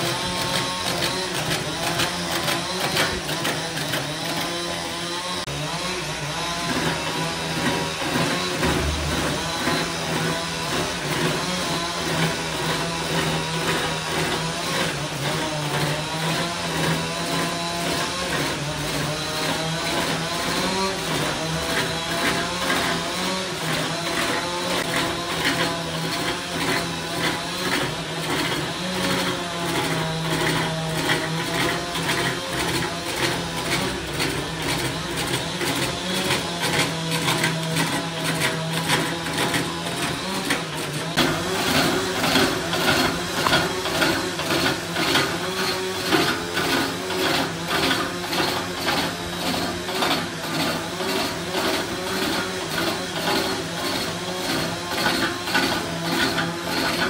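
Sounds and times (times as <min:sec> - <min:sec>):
lathe motor hum: 0:00.0 - 0:57.0
turning tool scraping wood: 0:00.0 - 0:57.0.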